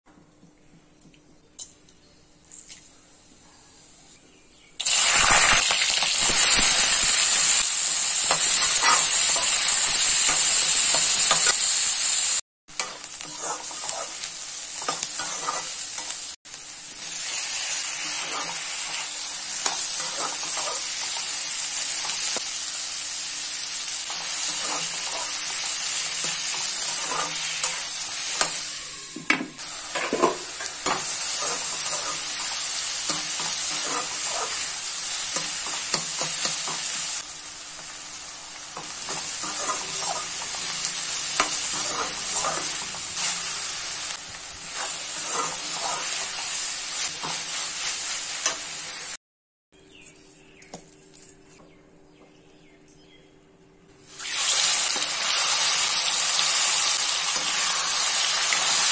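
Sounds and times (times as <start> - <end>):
spices sizzling in hot oil: 4.8 - 29.0, 29.6 - 49.2, 54.0 - 58.9
vegetables sizzling: 4.8 - 49.2, 54.0 - 58.9
metal spatula scraping pan: 14.9 - 15.8, 26.5 - 27.8, 41.4 - 43.5, 44.7 - 46.4.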